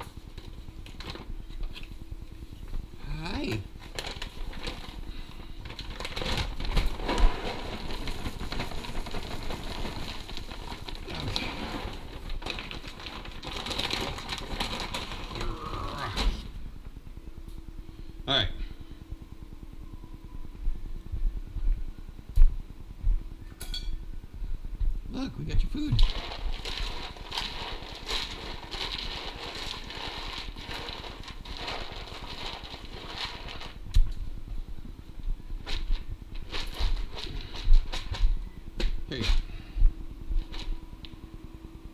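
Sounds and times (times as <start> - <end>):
plastic bags crinkling: 0.0 - 2.0, 3.1 - 16.6, 25.8 - 34.2, 35.6 - 39.5, 40.3 - 41.2
kibble rattling in plastic tub: 5.8 - 15.5, 25.9 - 33.8.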